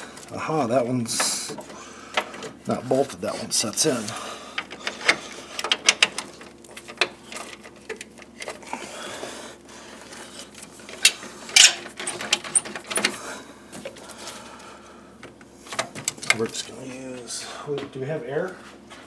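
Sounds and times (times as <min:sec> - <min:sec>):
metal tools clinking: 0:11.0 - 0:13.1.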